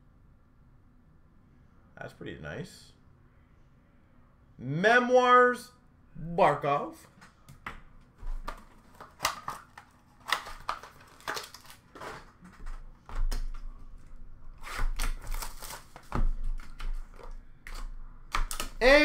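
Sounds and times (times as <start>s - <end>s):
wrapper crinkling: 8.3s - 12.8s, 14.8s - 17.3s
cards clicking and tapping: 14.9s - 18.8s.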